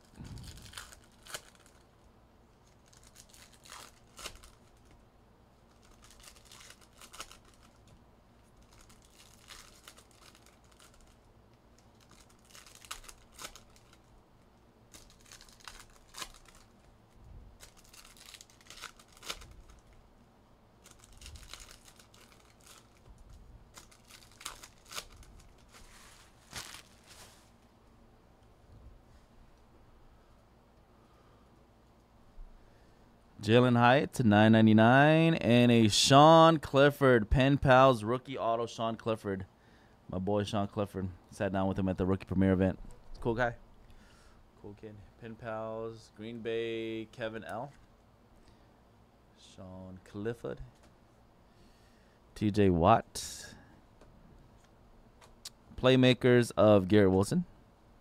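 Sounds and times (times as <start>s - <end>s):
card pack wrappers tearing: 0.0s - 1.8s, 2.6s - 5.0s, 5.7s - 14.1s, 14.9s - 16.9s, 17.6s - 20.0s, 20.8s - 23.1s, 23.7s - 27.5s
cards being handled: 20.9s - 27.6s.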